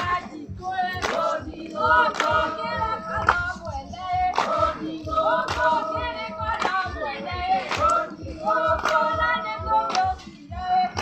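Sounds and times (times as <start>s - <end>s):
women singing together: 0.0s - 11.0s
sharp hand claps: 0.9s - 1.4s, 2.0s - 2.5s, 3.2s - 3.7s, 4.3s - 5.8s, 6.5s - 6.8s, 7.6s - 8.2s, 8.8s - 9.1s, 9.8s - 10.3s.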